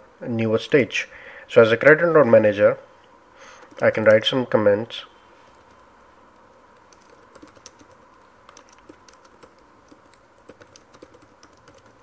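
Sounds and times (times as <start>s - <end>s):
typing on computer keyboard: 6.8s - 12.0s.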